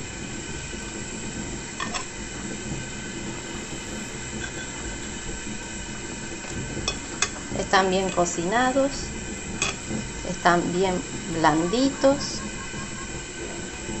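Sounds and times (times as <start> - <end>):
machine-like drone with hiss: 0.0 - 14.0.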